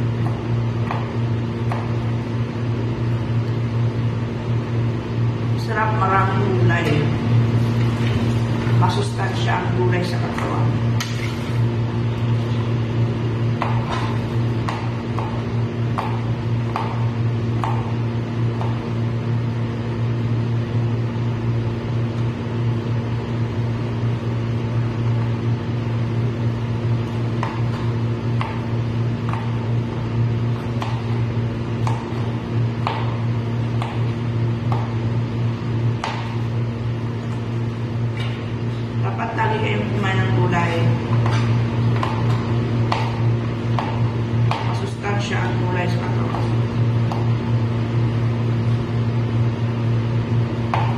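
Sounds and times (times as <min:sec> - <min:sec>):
knife chopping on cutting board: 0:30.6 - 0:31.2, 0:31.8 - 0:33.2, 0:33.8 - 0:34.1, 0:36.0 - 0:36.4, 0:41.2 - 0:44.7.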